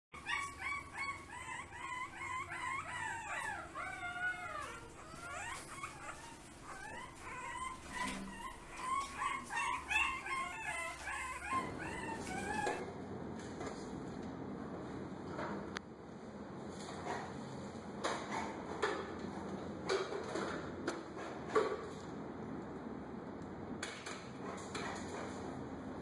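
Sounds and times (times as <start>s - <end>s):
puppy howl-like cries: 0.2s - 12.8s
puppy whimpering and yelping: 0.2s - 12.8s.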